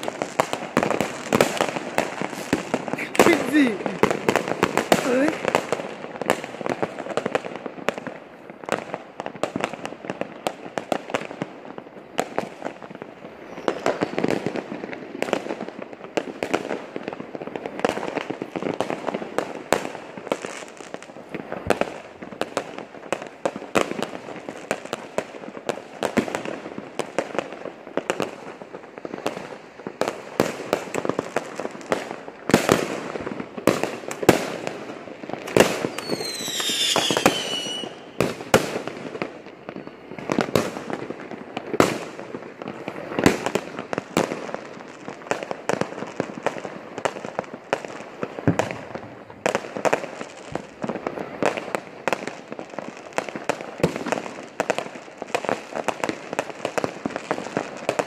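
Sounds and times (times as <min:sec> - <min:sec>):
fireworks bangs and crackles: 0:00.0 - 0:58.0
falling firework whistle: 0:13.4 - 0:14.3, 0:35.6 - 0:38.2.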